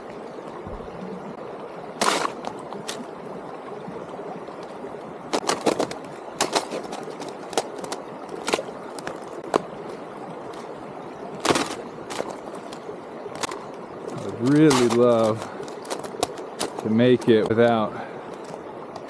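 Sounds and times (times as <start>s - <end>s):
flowing creek water: 0.0s - 19.0s.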